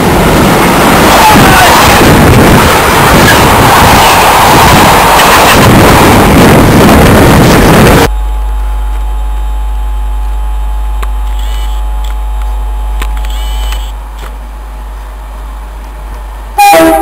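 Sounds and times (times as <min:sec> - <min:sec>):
freight train rushing past: 0:00.0 - 0:08.1, 0:15.2 - 0:17.0
low rumble: 0:00.0 - 0:11.2.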